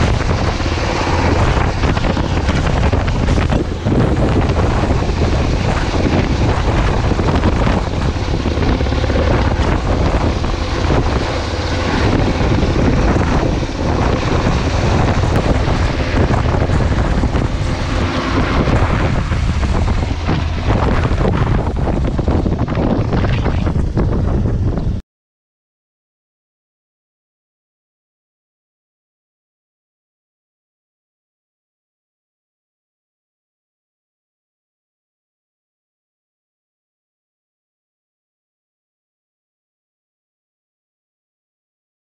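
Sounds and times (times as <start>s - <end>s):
downwash buffeting microphone: 0.0s - 25.0s
helicopter rotor and turbine noise: 0.0s - 25.0s.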